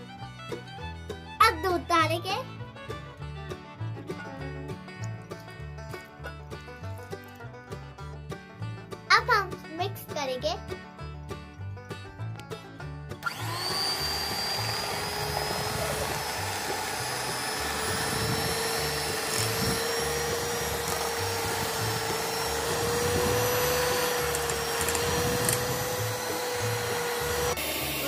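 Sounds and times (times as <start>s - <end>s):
electric hand mixer whining: 13.2s - 28.0s.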